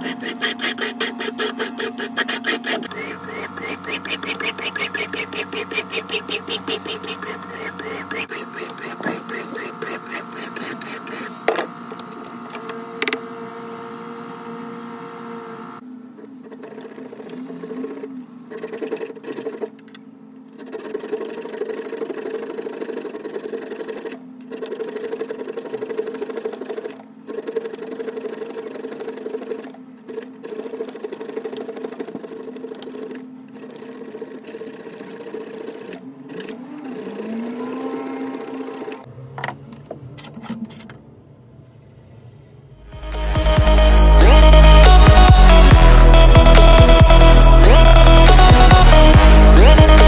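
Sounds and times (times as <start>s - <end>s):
file rasping on steel: 0.0s - 11.4s.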